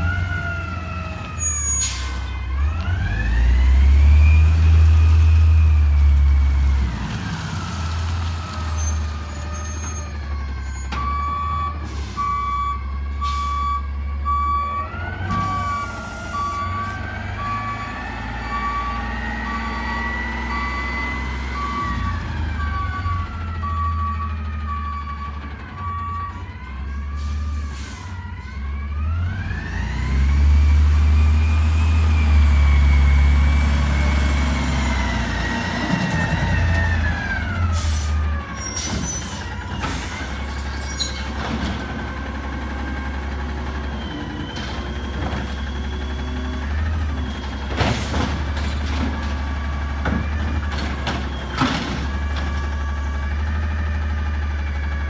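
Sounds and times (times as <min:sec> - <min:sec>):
truck engine whining: 0:00.0 - 0:55.0
reversing alarm beeps: 0:10.4 - 0:26.3, 0:43.6 - 0:47.7.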